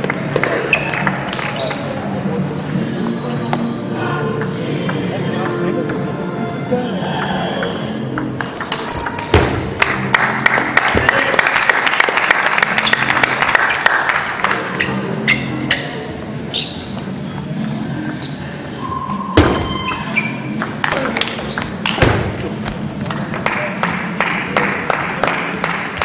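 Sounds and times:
murmur of voices: 0.0 - 8.8, 12.6 - 26.0
table tennis balls clicking: 7.2 - 10.8.

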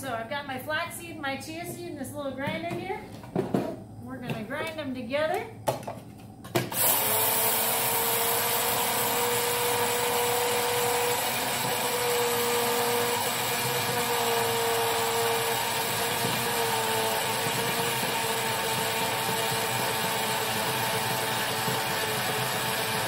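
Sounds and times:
electric seed grinder whining: 6.6 - 23.0.

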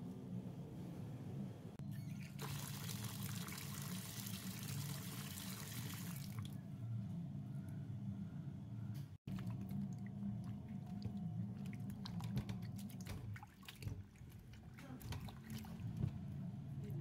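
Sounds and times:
tap water pouring into basin: 2.4 - 6.5.

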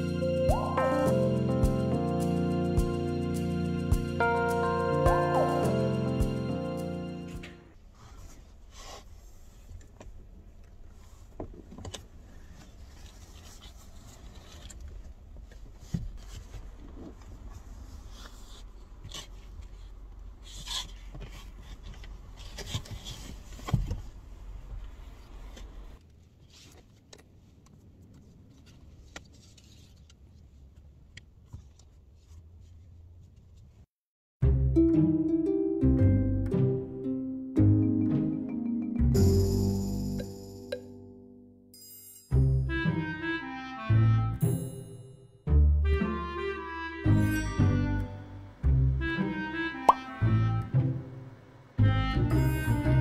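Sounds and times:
rubbing and scraping inside car: 7.7 - 33.8.

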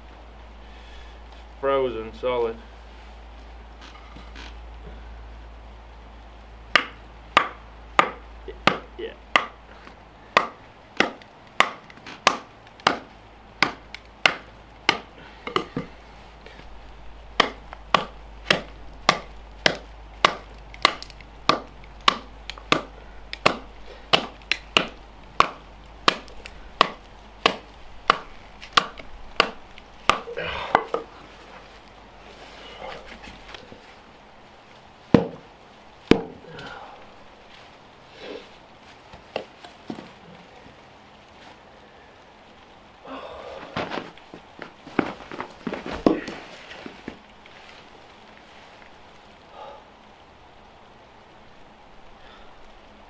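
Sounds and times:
hatchet chopping frozen log: 6.7 - 9.6, 10.3 - 15.9, 17.4 - 31.1, 35.1 - 35.4, 36.1 - 36.4.

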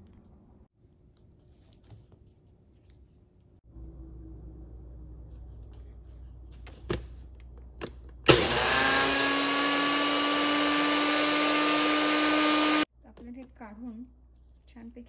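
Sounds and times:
blender motor whirring: 8.3 - 12.9.

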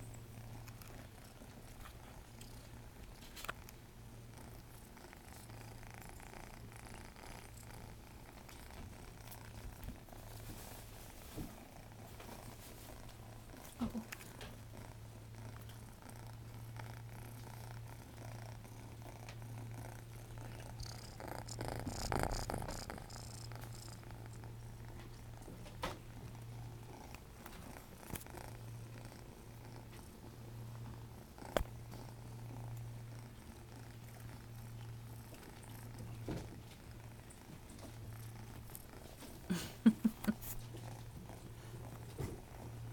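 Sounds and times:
kitten purring: 0.0 - 42.9.

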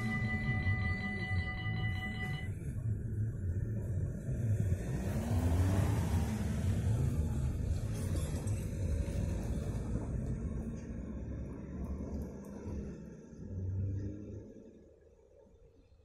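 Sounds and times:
steady high tones: 0.0 - 2.6
train whine: 0.0 - 3.8
electric train rumble: 0.0 - 5.3, 6.3 - 15.0.

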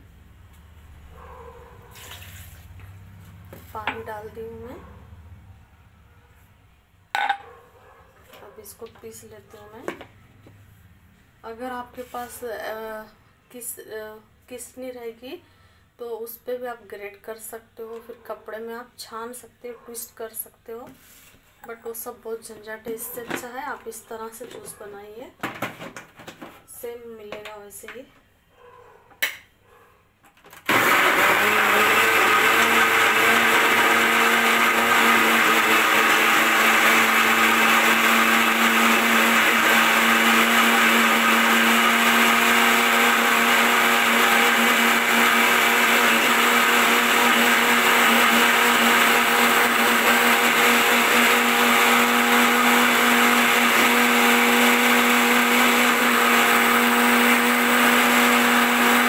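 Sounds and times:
mixer grinder running: 30.7 - 59.0.

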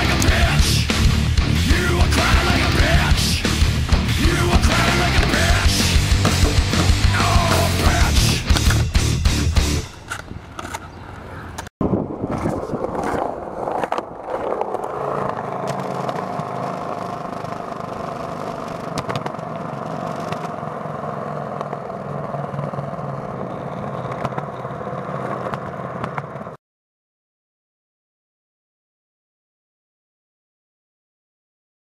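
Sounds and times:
skateboard wheels rolling on concrete: 0.0 - 26.6
skateboard clacks: 3.8 - 8.9, 12.3 - 26.6.

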